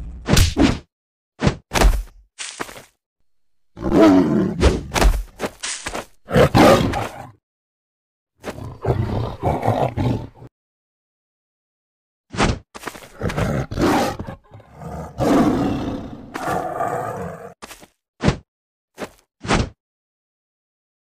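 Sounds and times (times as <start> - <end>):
big cat snarling and roaring: 3.8 - 4.9, 6.2 - 7.4, 8.4 - 10.5, 13.0 - 17.6.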